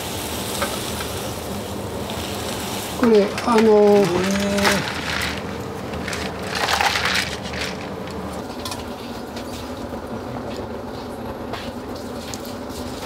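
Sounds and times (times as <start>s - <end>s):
faint clatter: 3.3s - 8.9s.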